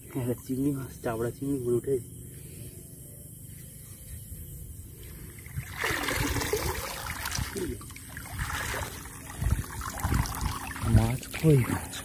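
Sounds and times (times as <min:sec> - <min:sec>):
water splashing and dripping: 0:05.3 - 0:12.0.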